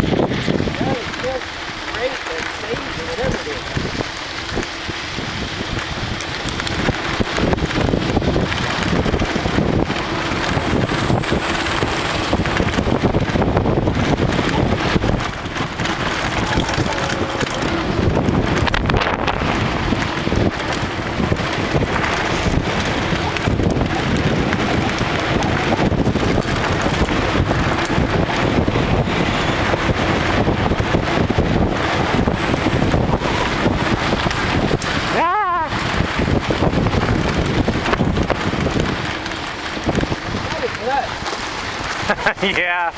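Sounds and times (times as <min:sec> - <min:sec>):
tyres rolling over dirt: 0:00.0 - 0:42.9
wind on microphone: 0:00.0 - 0:42.9
bike knocks and rattles: 0:02.0 - 0:35.0.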